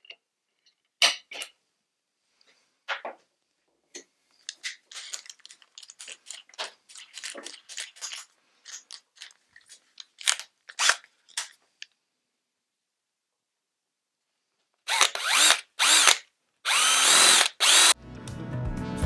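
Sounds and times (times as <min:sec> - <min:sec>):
drill chuck rasping clicks: 0:14.9 - 0:18.0.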